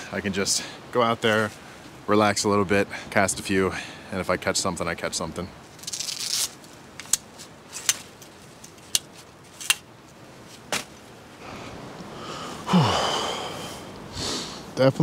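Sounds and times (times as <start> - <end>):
chair rustling and creaking: 5.7 - 11.0
camp chair frame clicking: 5.8 - 9.9.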